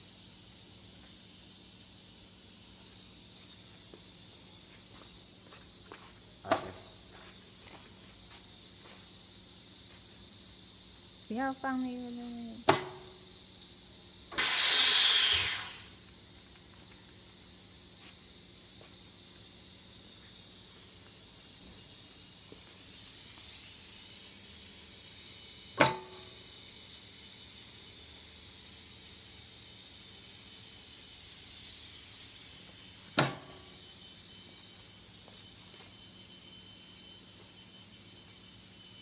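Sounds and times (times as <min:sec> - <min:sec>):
sharp metallic clunk: 0:12.7 - 0:13.2, 0:25.8 - 0:26.2
air hissing: 0:14.3 - 0:16.0.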